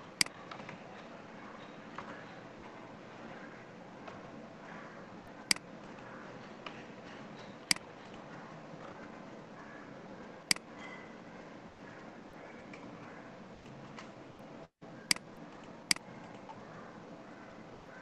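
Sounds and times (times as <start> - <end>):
computer mouse clicks: 15.1 - 15.3.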